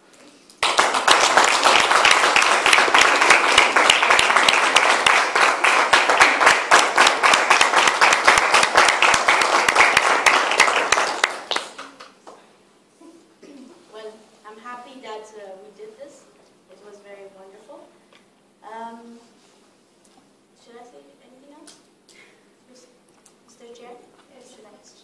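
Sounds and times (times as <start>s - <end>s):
audience clapping: 0.5s - 12.4s.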